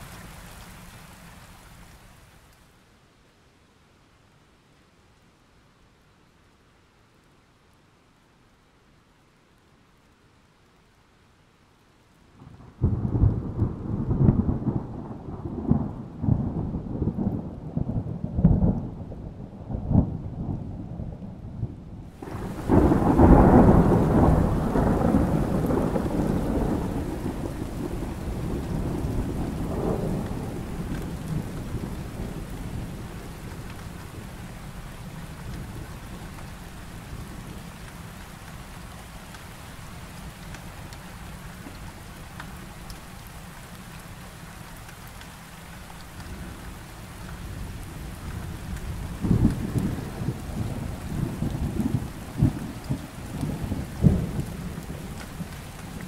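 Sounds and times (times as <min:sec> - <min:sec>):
heavy rain hissing: 0:00.0 - 0:03.0, 0:22.0 - 0:56.0
thunder rumbling: 0:12.4 - 0:37.8, 0:46.1 - 0:56.0.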